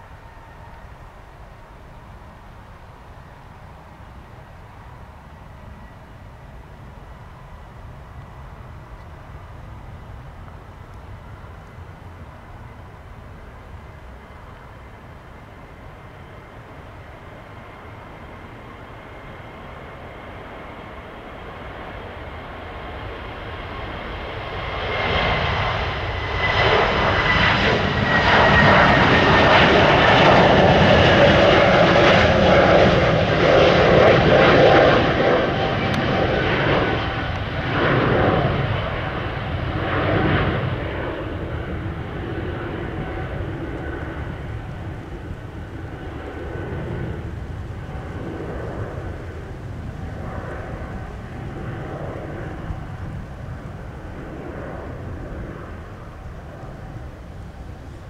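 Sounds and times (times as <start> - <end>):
jet engines at takeoff: 0.0 - 58.0.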